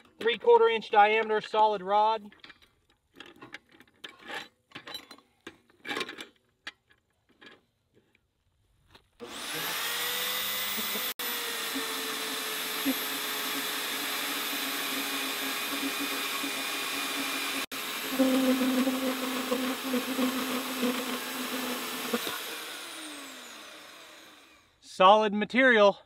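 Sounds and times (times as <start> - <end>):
band saw cutting metal rod: 9.2 - 24.6.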